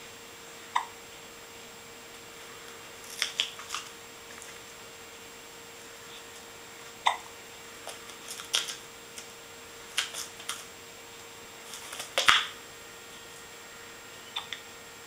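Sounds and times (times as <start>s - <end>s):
kittens' paws on a blanket: 11.6s - 12.4s.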